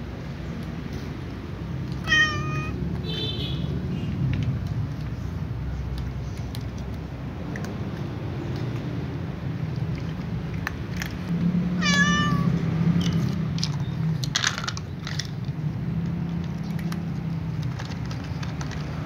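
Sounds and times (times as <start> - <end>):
cat meowing: 1.9 - 2.8, 11.8 - 12.6.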